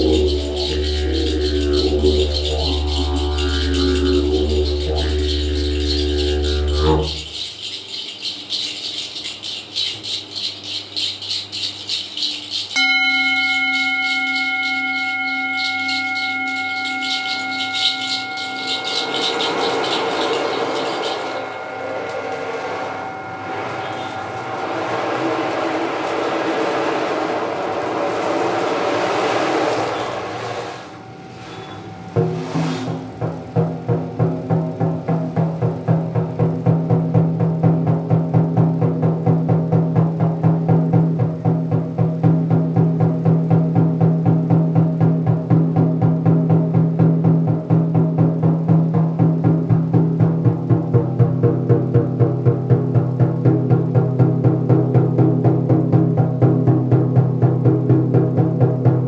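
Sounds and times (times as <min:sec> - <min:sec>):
struck metal instrument ringing: 0:00.0 - 0:29.1, 0:29.8 - 0:59.0
fast rattle: 0:00.0 - 0:30.2
didgeridoo drone: 0:00.0 - 0:59.0
pulsing rattle: 0:00.0 - 0:59.0
rushing noise: 0:15.0 - 0:33.2.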